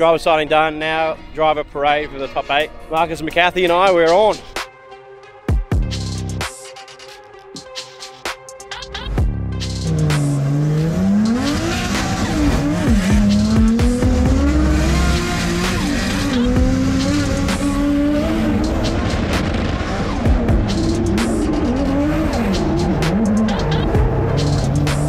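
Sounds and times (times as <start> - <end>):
car engine revving hard: 9.8 - 25.0.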